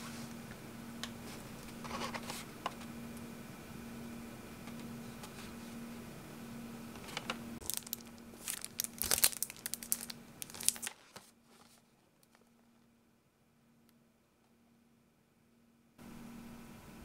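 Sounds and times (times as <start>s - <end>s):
plastic packaging crinkling: 7.6s - 12.9s.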